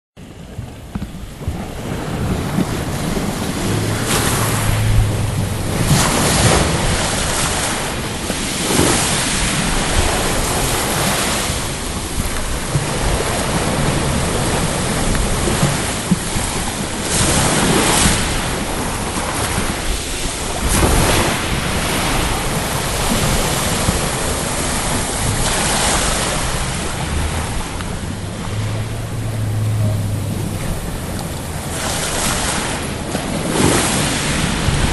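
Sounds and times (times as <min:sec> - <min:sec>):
sea surf breaking: 0:00.2 - 0:34.9
wind buffeting microphone: 0:00.2 - 0:34.9.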